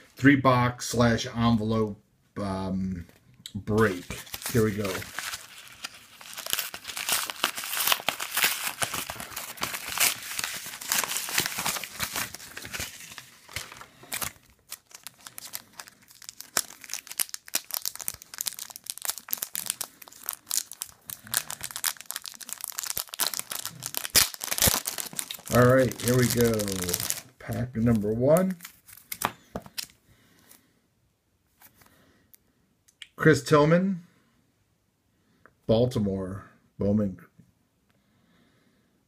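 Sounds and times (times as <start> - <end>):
packaging crinkling and tearing: 3.8 - 30.0.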